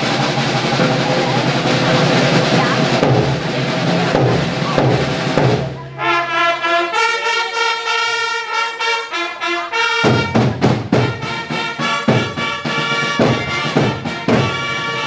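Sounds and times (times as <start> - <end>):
drums beating: 0.0 - 15.0
herald trumpets fanfare: 5.8 - 15.0.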